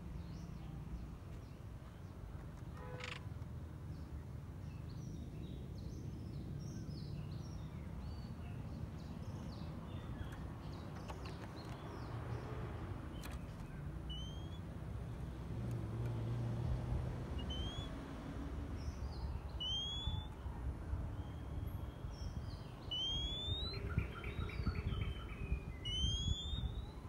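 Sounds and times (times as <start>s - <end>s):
bird chirps: 13.1s - 14.6s, 17.3s - 18.1s, 18.8s - 27.0s
rising whistled bird note: 17.4s - 18.0s, 19.5s - 20.3s, 22.8s - 27.0s.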